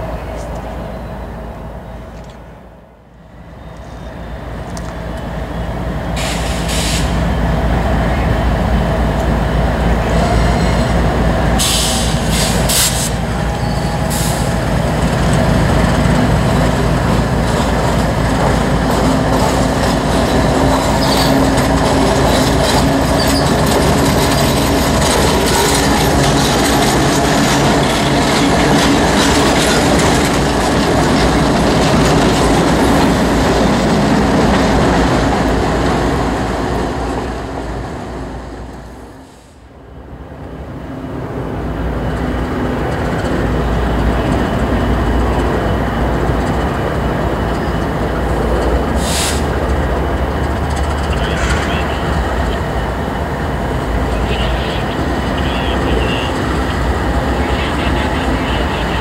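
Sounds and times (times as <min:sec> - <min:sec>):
diesel locomotive engine rumble: 0:00.0 - 0:59.0
wheels clattering on rail: 0:12.1 - 0:37.3, 0:41.6 - 0:59.0
high wheel squeals: 0:13.4 - 0:14.6, 0:22.4 - 0:26.9.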